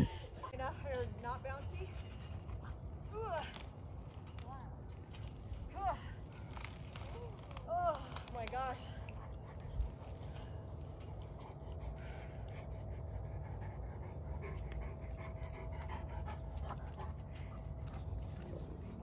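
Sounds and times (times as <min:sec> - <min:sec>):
dog panting: 0:09.0 - 0:19.0.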